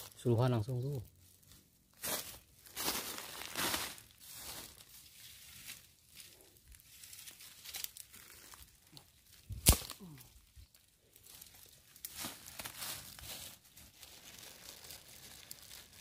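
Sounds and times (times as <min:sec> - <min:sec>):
dry straw and twigs crackling: 0:00.0 - 0:16.0
plastic bag crinkling: 0:02.6 - 0:05.0, 0:11.2 - 0:16.0
twig snapping: 0:07.7 - 0:08.2, 0:08.9 - 0:10.3.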